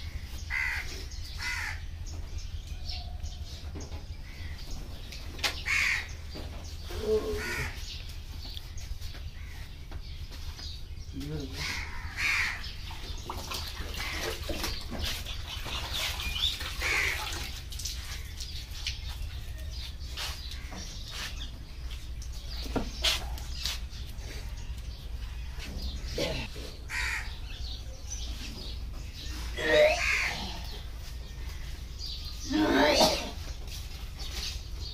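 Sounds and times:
crows cawing: 0.5s - 1.9s, 5.6s - 6.2s, 7.3s - 8.0s, 11.5s - 12.8s, 16.8s - 17.4s, 26.9s - 27.7s, 29.7s - 30.6s
water sloshing in a bucket: 12.7s - 21.4s.

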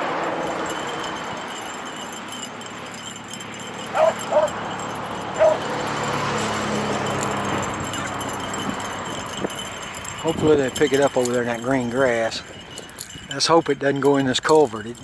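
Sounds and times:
dogs barking: 3.9s - 4.6s, 5.4s - 5.7s.

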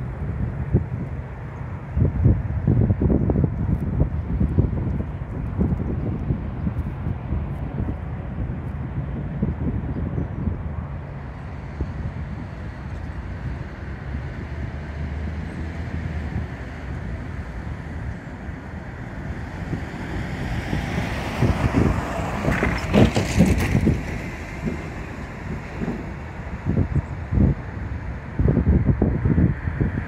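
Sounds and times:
city traffic rumble: 0.0s - 30.0s
wind buffeting microphone: 0.0s - 30.0s
freight train approaching: 6.4s - 30.0s.

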